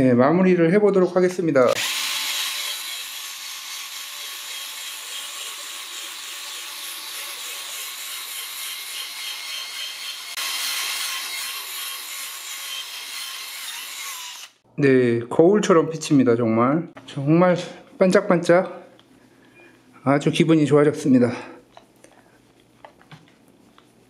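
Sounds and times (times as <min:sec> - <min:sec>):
drill motor whine: 0:01.8 - 0:06.8, 0:14.1 - 0:14.6.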